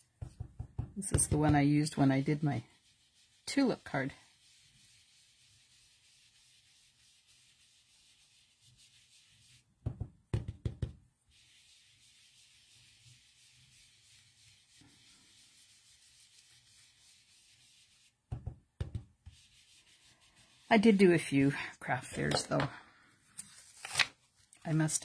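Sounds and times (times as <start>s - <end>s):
sponge scuffing on cardstock: 11.3s - 20.7s.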